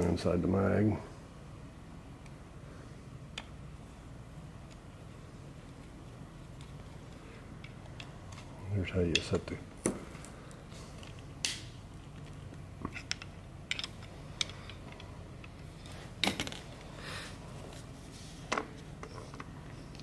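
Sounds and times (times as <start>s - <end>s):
low steady hum: 0.0s - 20.0s
small metallic clicks and knocks: 11.0s - 15.6s.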